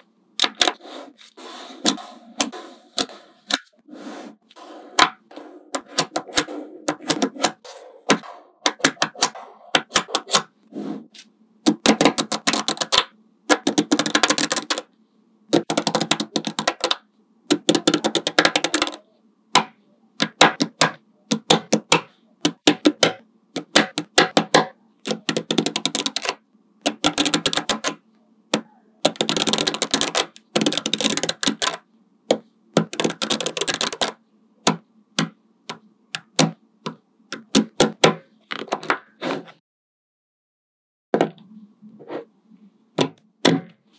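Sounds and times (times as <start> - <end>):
magnetic balls clicking and clattering: 11.7 - 14.9, 15.5 - 19.0, 19.6 - 39.0.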